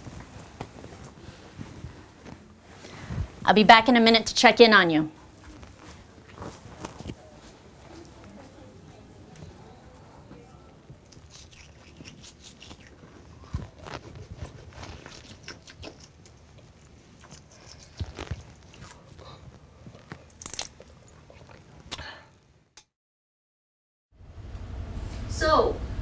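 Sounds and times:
toothbrush scrubbing teeth: 11.0s - 21.8s.

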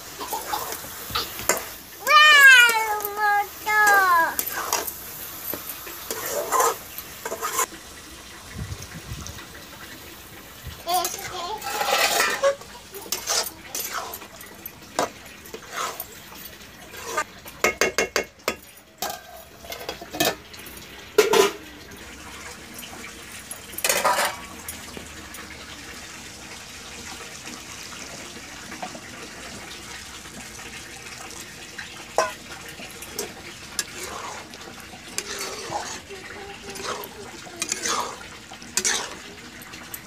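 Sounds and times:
metal spatula scraping pan: 3.7s - 5.0s, 5.6s - 7.7s, 11.0s - 14.3s, 15.5s - 16.2s, 16.9s - 17.3s, 23.8s - 24.5s, 33.2s - 39.4s.

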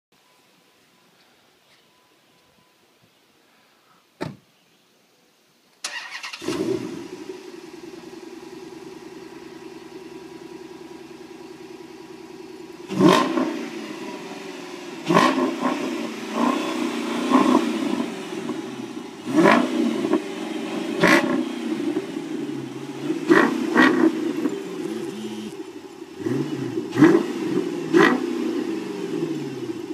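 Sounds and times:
car door shutting: 4.2s - 4.4s
car engine starting and idling: 5.8s - 29.9s
engine revving: 5.9s - 29.9s.

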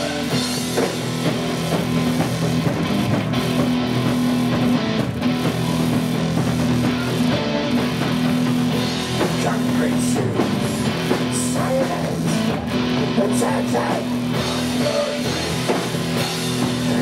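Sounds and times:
rock music with guitar and drums: 0.0s - 17.0s.

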